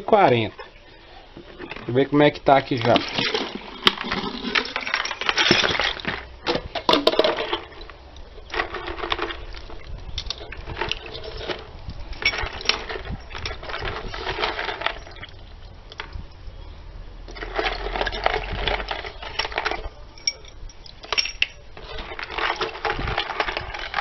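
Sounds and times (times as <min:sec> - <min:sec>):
plastic bag rustling: 0:01.4 - 0:15.3, 0:21.1 - 0:24.0
iron hardware clinking: 0:19.4 - 0:21.7.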